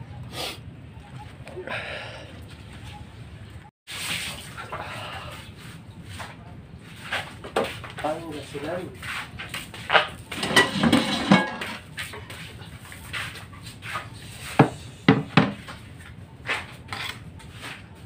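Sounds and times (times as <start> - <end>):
kitchenware clattering: 9.9 - 11.9, 14.6 - 15.8.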